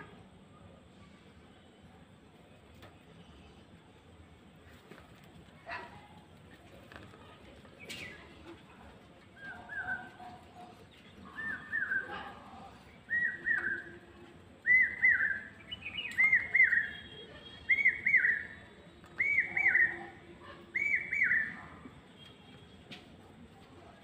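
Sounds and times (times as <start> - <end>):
bird calling high arching notes: 11.2 - 21.6.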